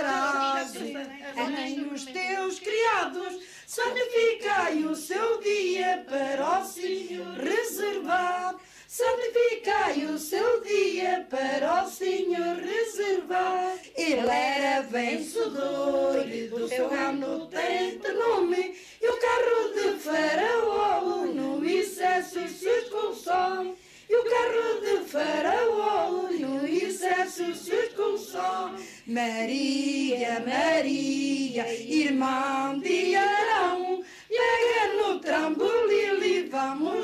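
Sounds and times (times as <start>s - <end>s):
women singing unaccompanied: 0.0s - 37.0s.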